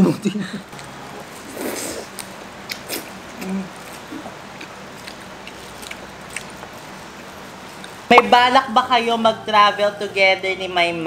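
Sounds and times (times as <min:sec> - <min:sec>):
chewing and biting: 0:01.7 - 0:08.0.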